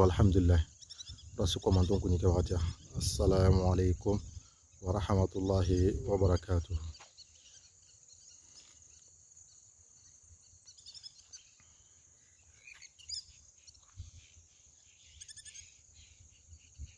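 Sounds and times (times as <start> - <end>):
wind rumble on microphone: 0.0 - 6.9, 16.4 - 16.9
bird chirps: 0.0 - 16.9
insects chirping: 0.0 - 16.9.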